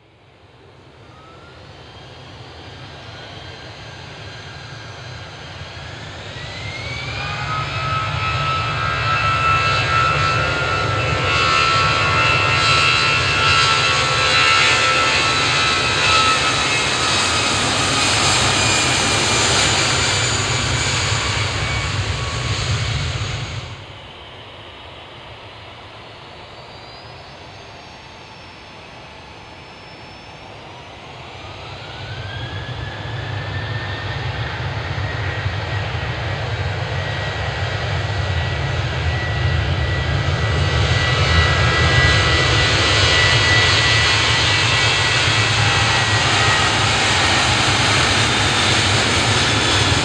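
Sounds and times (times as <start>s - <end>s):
jet engines roaring: 0.3s - 50.0s.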